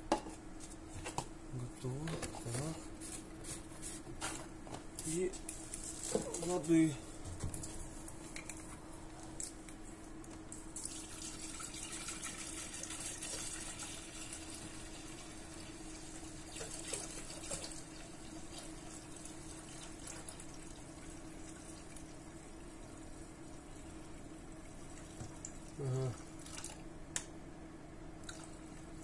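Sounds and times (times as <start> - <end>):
water pouring into metal tank: 10.8 - 15.6.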